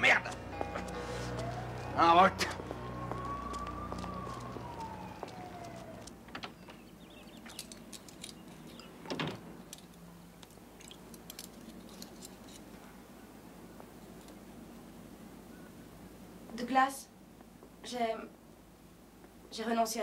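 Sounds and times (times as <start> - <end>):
falling tone: 0.3 - 6.1.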